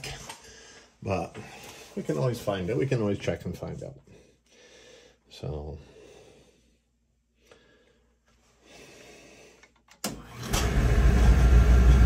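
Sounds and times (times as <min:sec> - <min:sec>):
oil burner low rumble: 0:10.4 - 0:12.0.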